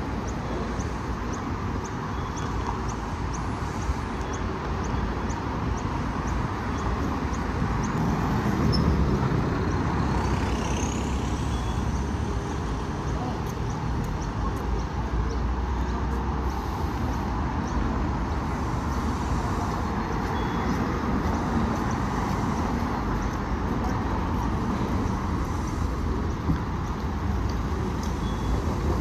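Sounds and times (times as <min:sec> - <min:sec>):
street traffic noise: 0:00.0 - 0:29.0
bus engine idling: 0:06.0 - 0:29.0.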